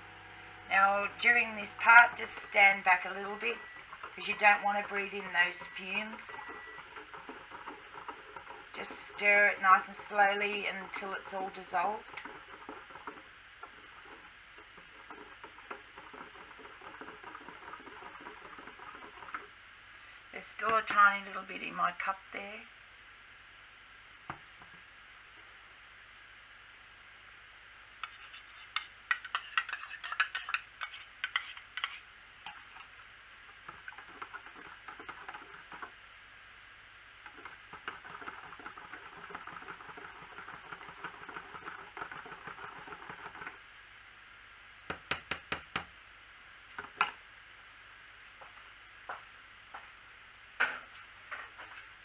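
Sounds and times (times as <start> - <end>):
stirring in a plastic jug: 0.7 - 19.6, 28.0 - 36.0, 37.2 - 43.6
metal spoon clinking and scraping: 28.0 - 32.0.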